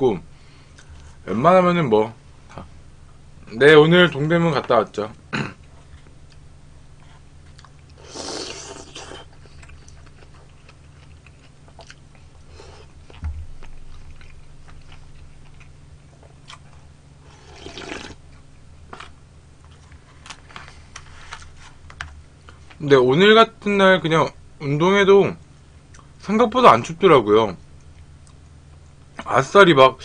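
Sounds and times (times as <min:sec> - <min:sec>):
person chewing: 0:07.4 - 0:20.4
slurping from a bowl: 0:08.0 - 0:09.3, 0:17.3 - 0:18.2.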